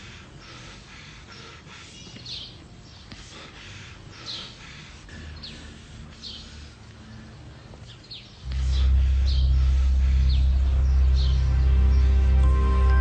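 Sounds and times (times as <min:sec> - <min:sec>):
birds chirping: 0:00.0 - 0:13.0
low sustained background music: 0:05.1 - 0:13.0.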